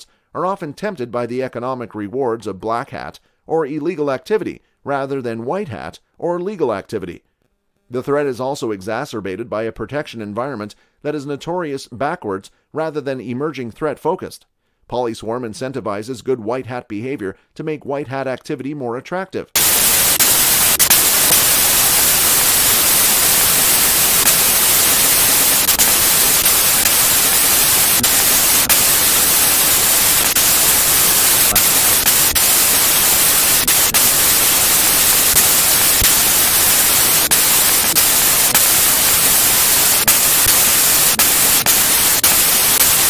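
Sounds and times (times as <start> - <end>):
loud static hiss: 19.6 - 43.0.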